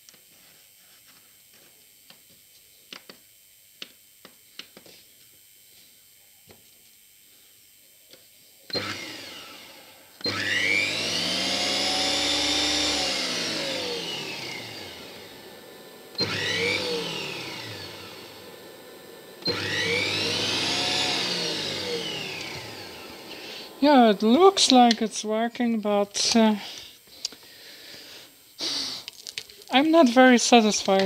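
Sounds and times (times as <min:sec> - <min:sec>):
electric motor whine spinning up: 0:08.7 - 0:28.8.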